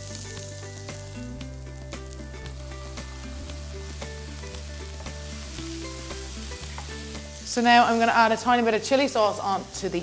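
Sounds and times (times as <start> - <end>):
background music: 0.0 - 10.0
vegetables sizzling in frying pan: 0.0 - 10.0.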